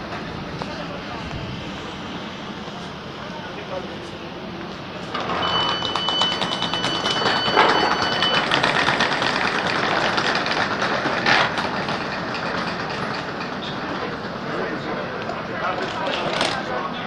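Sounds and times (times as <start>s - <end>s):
wheeled suitcases rattling on paving: 5.1s - 14.4s, 15.6s - 16.6s
steady high beep: 5.2s - 9.2s.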